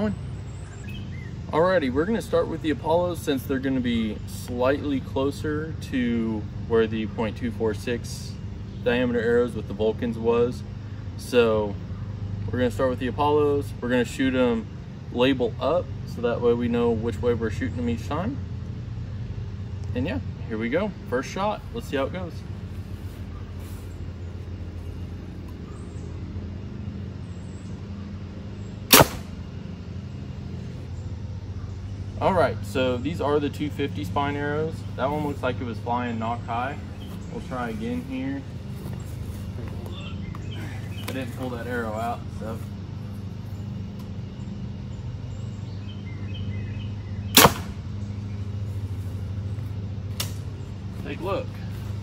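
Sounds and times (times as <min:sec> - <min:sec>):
steady low hum: 0:00.0 - 0:52.0
arrow hitting target: 0:28.9 - 0:29.4, 0:47.3 - 0:47.8
bow string snap: 0:28.9 - 0:29.4, 0:47.4 - 0:47.8, 0:50.1 - 0:50.5
bow string release crack: 0:50.1 - 0:50.5.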